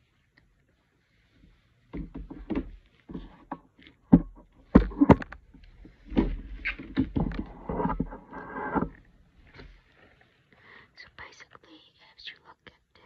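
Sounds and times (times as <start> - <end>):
sharp knocks and taps: 1.9 - 8.9
clattering and rustling: 1.9 - 10.3.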